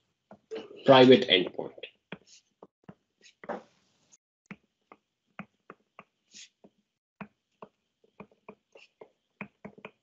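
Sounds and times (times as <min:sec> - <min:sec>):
stylus tapping on touchscreen: 0:05.4 - 0:06.1, 0:07.2 - 0:08.6, 0:09.4 - 0:10.0.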